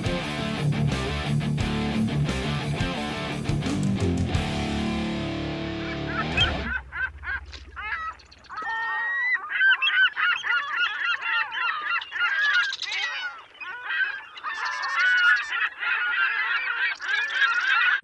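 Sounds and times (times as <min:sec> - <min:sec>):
flock of birds calling: 0:05.7 - 0:18.0.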